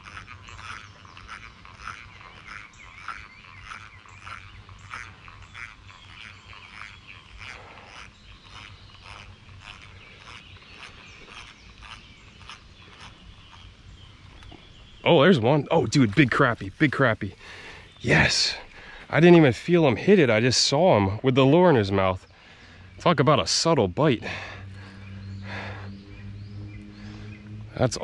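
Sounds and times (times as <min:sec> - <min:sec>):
fishing reel squeaking: 0:00.0 - 0:14.5.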